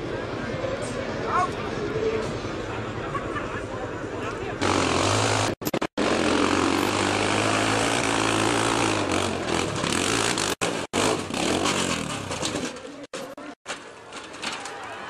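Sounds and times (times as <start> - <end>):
dirt bike engine revving high: 4.6 - 12.1.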